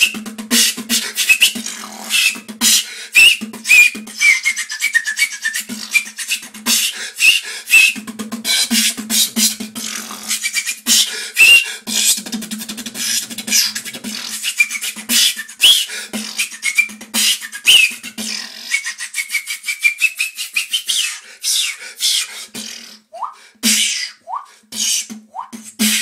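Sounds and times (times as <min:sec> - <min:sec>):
whistled pitch glides: 0:00.0 - 0:00.2, 0:01.2 - 0:08.0, 0:10.3 - 0:11.7, 0:13.5 - 0:18.0, 0:18.7 - 0:21.6, 0:23.1 - 0:25.5
beatboxing: 0:00.0 - 0:26.0.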